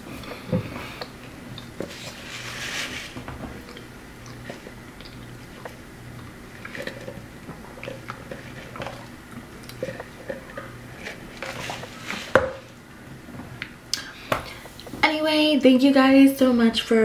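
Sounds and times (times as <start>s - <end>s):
wet mouth and chewing sounds: 0.1s - 2.2s, 3.6s - 12.2s.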